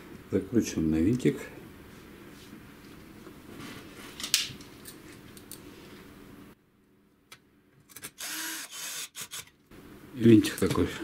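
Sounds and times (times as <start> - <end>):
cordless drill driving a screw: 8.2 - 9.5.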